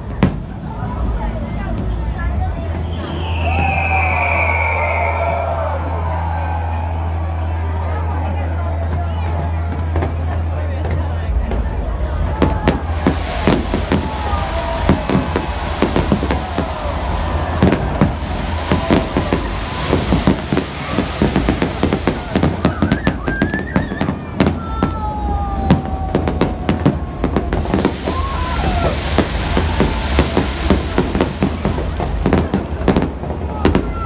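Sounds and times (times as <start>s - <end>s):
firework bangs and crackles: 0.0s - 6.4s, 7.3s - 34.0s
whistling fireworks: 2.6s - 5.6s, 8.8s - 10.1s, 12.3s - 34.0s.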